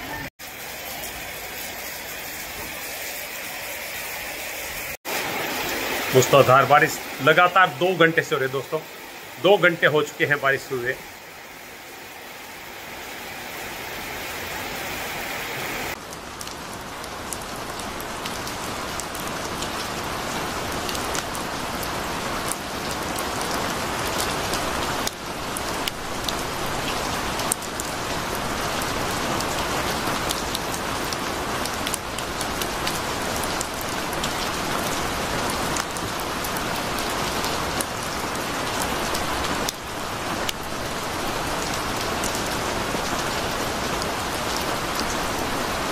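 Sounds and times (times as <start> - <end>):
torrential rain: 0.0 - 45.9.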